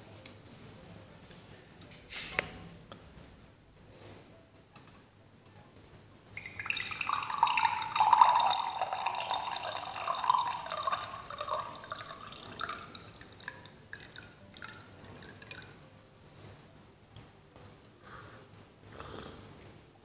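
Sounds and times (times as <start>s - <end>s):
soda fizzing: 2.0s - 2.5s, 6.4s - 15.8s
soda pouring into glass: 6.4s - 15.8s.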